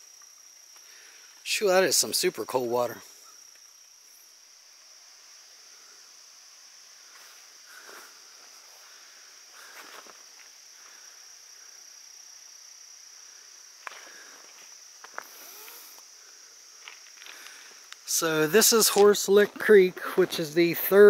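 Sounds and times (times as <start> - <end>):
insects droning: 0.0 - 21.0
footsteps crunching on gravel: 13.8 - 15.8, 16.8 - 17.6, 18.2 - 21.0.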